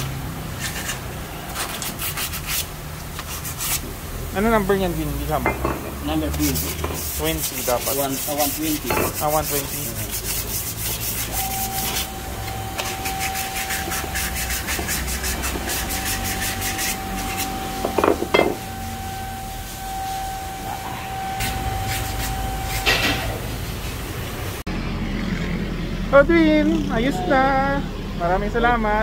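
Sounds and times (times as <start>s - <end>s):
sandpaper rasping on metal: 0.5s - 3.9s, 4.7s - 23.3s.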